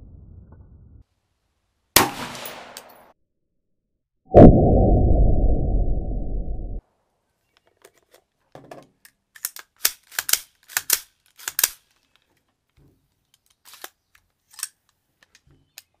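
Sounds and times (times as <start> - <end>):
rifle clicks and rattles: 7.6 - 16.0.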